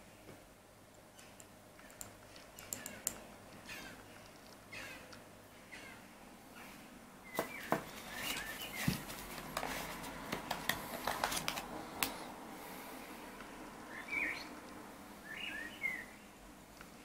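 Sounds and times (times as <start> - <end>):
small parts clicking and tapping: 0.9 - 5.2
faint bird chirps: 13.9 - 14.6, 15.2 - 16.3.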